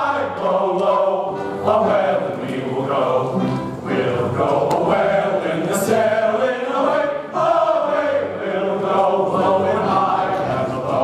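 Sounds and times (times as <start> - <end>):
chorus singing: 0.0 - 11.0.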